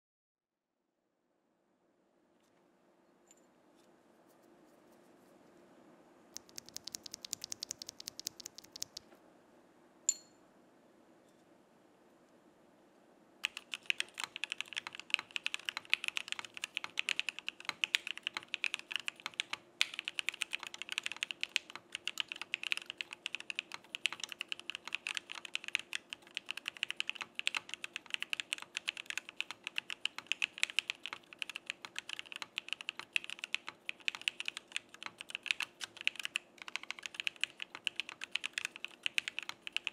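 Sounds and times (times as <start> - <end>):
mechanical keyboard keys clacking: 6.4 - 9.0, 13.4 - 39.9
light high-pitched key clicks: 6.4 - 9.1.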